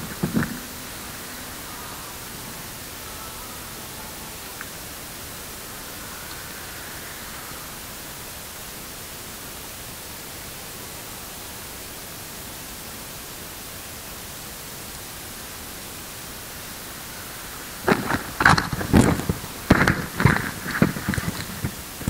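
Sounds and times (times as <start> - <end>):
noise test signal hiss: 0.0 - 22.0
sharp knocks and clatter: 17.9 - 22.0.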